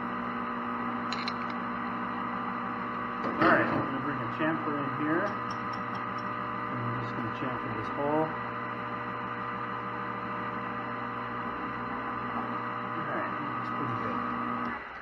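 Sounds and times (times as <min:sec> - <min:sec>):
metal lathe humming: 0:03.9 - 0:15.0.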